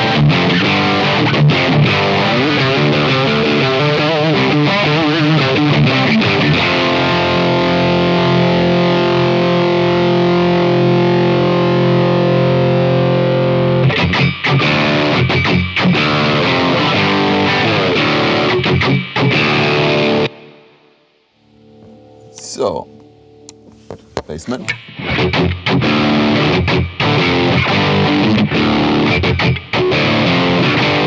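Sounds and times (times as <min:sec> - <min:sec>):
overdriven electric guitar chords: 0:00.0 - 0:31.0.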